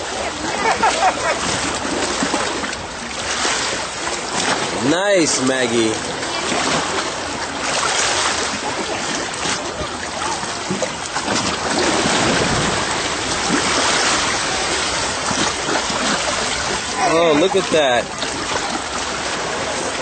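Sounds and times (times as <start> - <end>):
seawater sloshing and splashing: 0.0 - 20.0.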